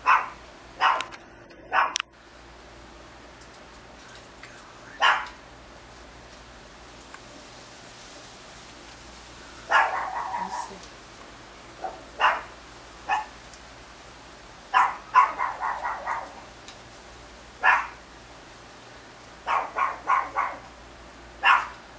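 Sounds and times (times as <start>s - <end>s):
dog barking: 0.0s - 2.0s, 5.0s - 5.4s, 9.7s - 10.8s, 11.8s - 13.4s, 14.7s - 16.5s, 17.6s - 18.0s, 19.4s - 20.7s, 21.4s - 21.8s.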